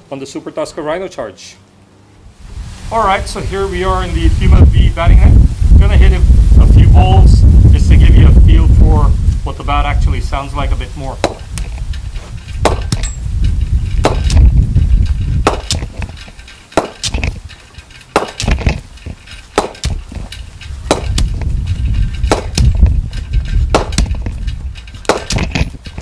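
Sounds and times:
low rumble: 2.3 - 26.0
cricket bat striking ball: 15.5 - 15.8.

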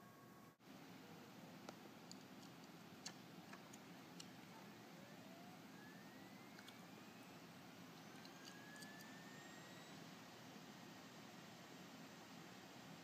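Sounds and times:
faint steady hiss: 0.0 - 13.0
rising whistle-like tone: 5.0 - 7.3, 8.0 - 10.0.

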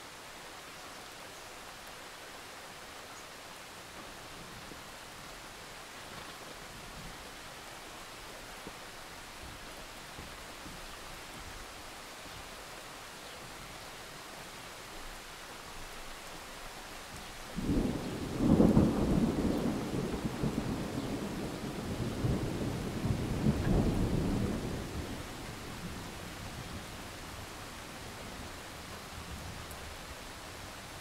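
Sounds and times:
steady rain: 0.0 - 31.0
thunder rumbling: 17.6 - 29.8.

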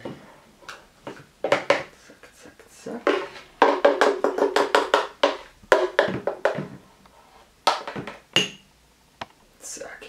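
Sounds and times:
metal spoon knocking plastic jar: 3.1 - 6.7.

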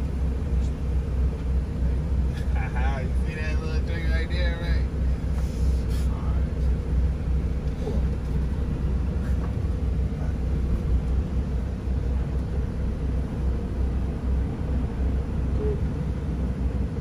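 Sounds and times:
diesel truck engine rumble: 0.0 - 17.0.

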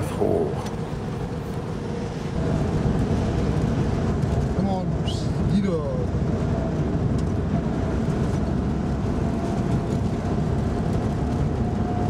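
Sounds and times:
vehicle rumbling on gravel: 0.0 - 12.0.

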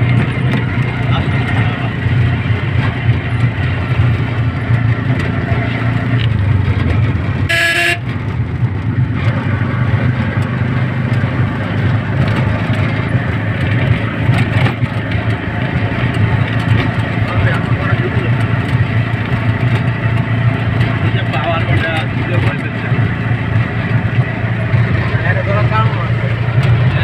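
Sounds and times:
vehicle horn: 7.5 - 8.2.

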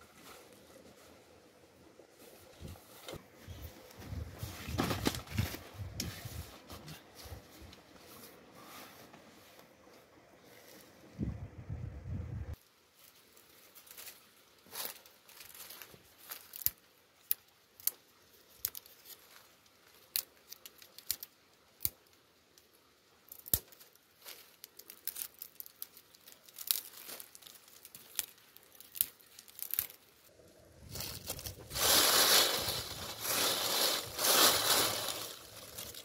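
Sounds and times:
thin branches rustling: 0.0 - 11.2, 12.5 - 36.0
twigs snapping: 14.7 - 30.1, 30.9 - 36.0.

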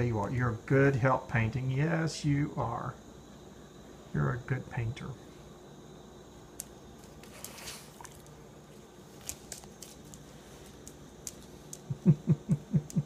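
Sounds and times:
low steady hum: 0.0 - 13.0
dog claws ticking on vinyl floor: 9.2 - 11.9.

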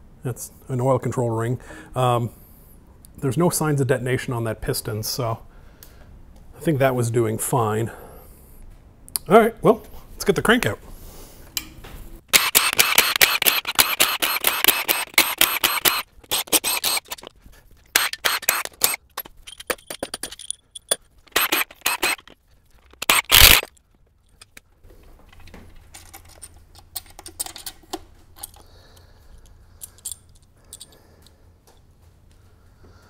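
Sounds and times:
metal parts clinking and scraping: 12.3 - 24.7, 25.3 - 28.6, 29.8 - 31.0
ratchet wrench clicking: 12.4 - 17.3, 17.9 - 23.7.

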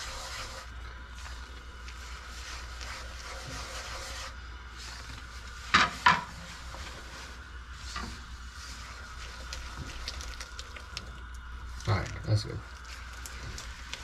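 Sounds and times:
spatula scraping pan: 0.0 - 9.0.

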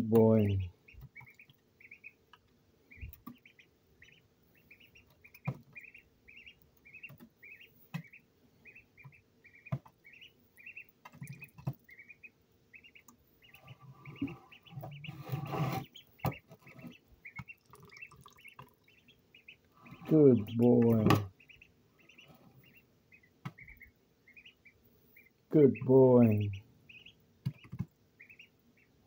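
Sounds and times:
duckling peeping: 0.0 - 29.0
rustling scraping noise: 13.7 - 17.0.

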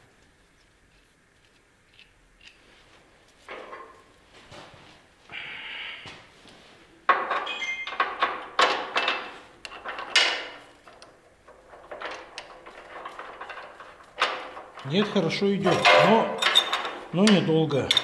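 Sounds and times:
metal clanks and scrapes: 7.4 - 18.0
sharp metallic knocks: 15.6 - 18.0.

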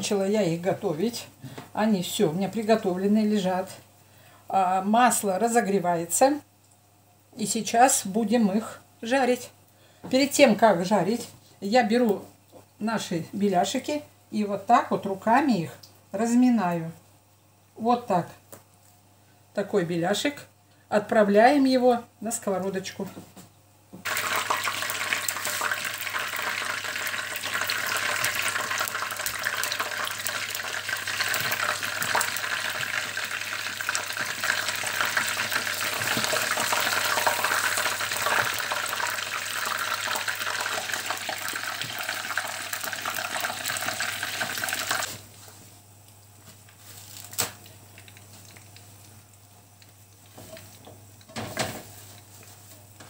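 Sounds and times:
pies sizzling in hot oil: 24.0 - 45.2.

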